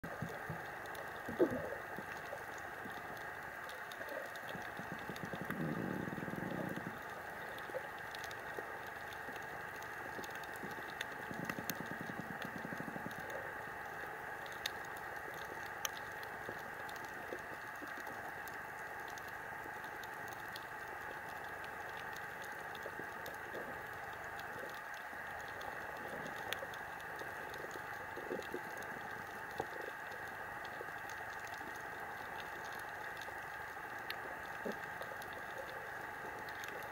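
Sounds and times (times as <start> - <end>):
low gurgling: 0.0 - 13.7.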